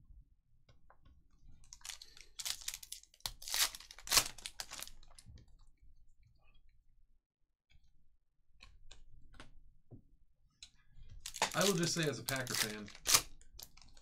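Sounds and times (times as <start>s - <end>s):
cards rustling: 1.7s - 5.1s, 11.2s - 14.0s
foil wrapper crinkling and tearing: 1.7s - 5.2s, 11.3s - 14.0s.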